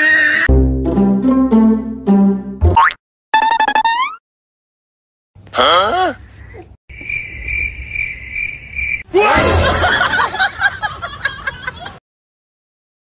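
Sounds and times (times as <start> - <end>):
cricket chirping: 6.9 - 9.1.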